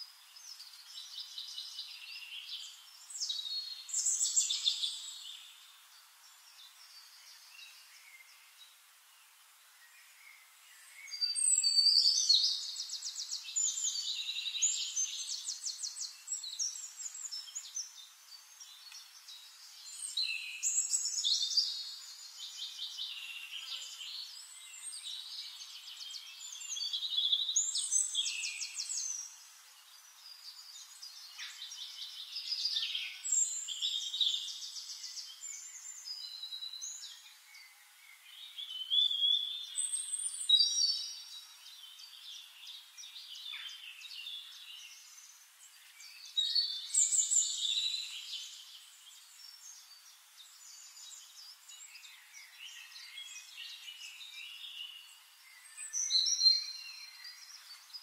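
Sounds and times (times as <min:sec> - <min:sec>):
songbirds trilling and chirping: 0:00.0 - 0:58.0.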